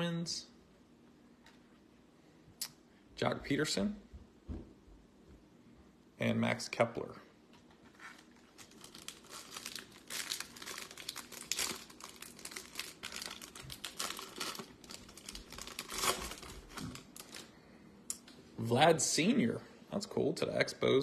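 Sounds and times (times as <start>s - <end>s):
foil wrapper crinkling and tearing: 8.0s - 17.5s.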